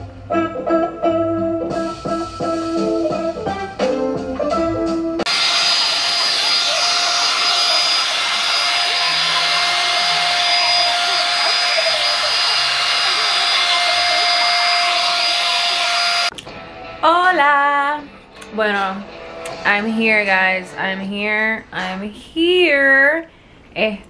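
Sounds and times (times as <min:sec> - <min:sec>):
hair dryer brush blowing air: 0:05.3 - 0:16.3
motor whine: 0:05.3 - 0:16.3.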